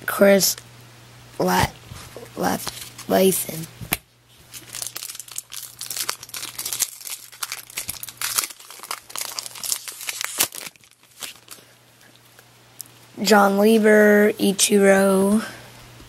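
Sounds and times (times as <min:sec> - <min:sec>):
foil wrapper crinkling: 0:04.4 - 0:11.8.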